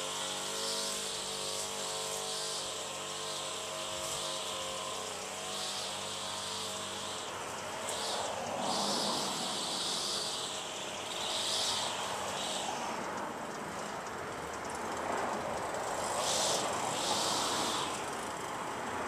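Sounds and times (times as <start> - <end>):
outdoor background rumble and hiss: 0.0 - 19.0
short swells of higher hiss: 15.8 - 18.4.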